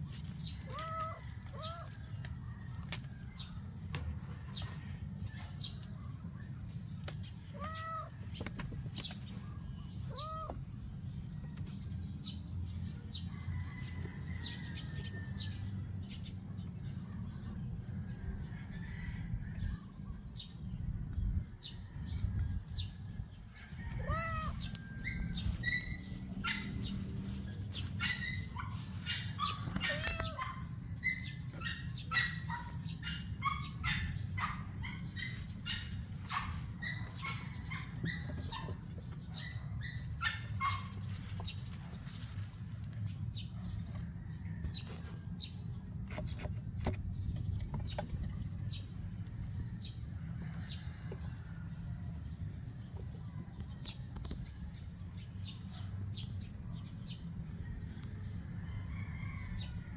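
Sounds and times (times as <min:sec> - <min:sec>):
birds chirping: 0:00.0 - 0:21.9, 0:22.7 - 0:51.6
rising-and-falling bird cries: 0:00.6 - 0:02.0, 0:07.5 - 0:08.3, 0:10.0 - 0:10.7, 0:23.8 - 0:26.7, 0:29.3 - 0:31.3.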